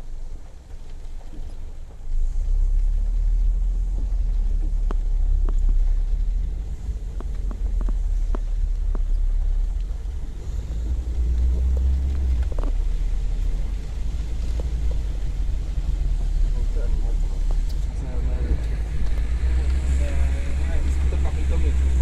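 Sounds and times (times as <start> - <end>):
raindrops tapping window glass: 0.0 - 22.0
storm wind: 0.0 - 22.0.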